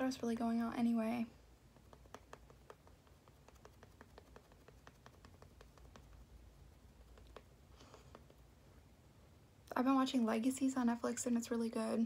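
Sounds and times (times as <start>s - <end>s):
makeup sponge dabbing skin: 1.6s - 8.6s.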